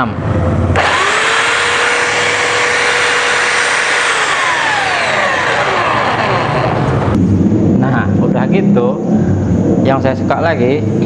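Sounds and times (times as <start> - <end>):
belt sander whining: 0.6 - 7.2.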